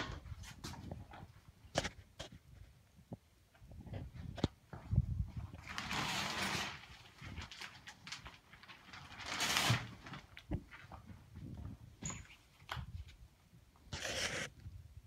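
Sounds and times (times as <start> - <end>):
shower curtain rustling: 5.6 - 10.4.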